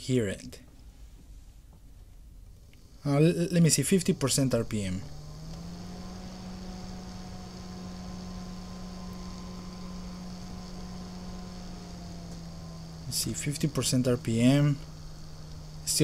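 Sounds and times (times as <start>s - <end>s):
computer fan humming: 1.9s - 16.0s.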